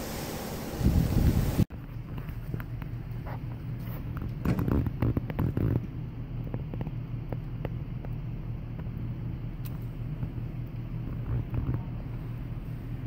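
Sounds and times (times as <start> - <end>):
wind buffeting microphone: 0.8 - 1.7.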